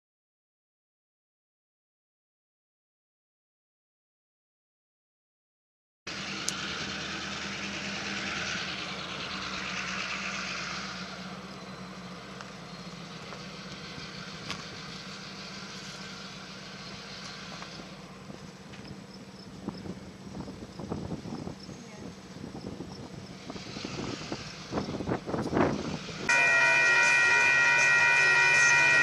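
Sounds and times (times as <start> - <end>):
vehicle engine humming: 6.1 - 29.0.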